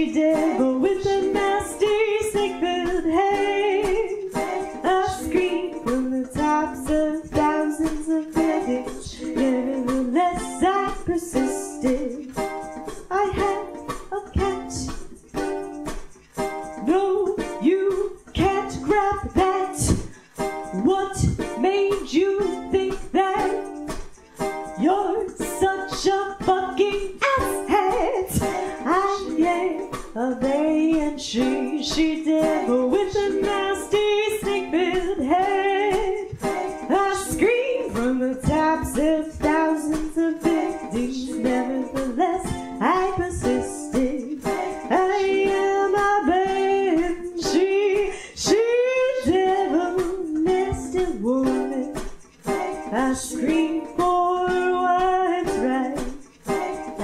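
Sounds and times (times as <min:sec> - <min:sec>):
woman singing: 0:00.0 - 0:15.1, 0:16.7 - 0:24.0, 0:24.6 - 0:57.0
ukulele accompaniment: 0:00.0 - 0:57.0.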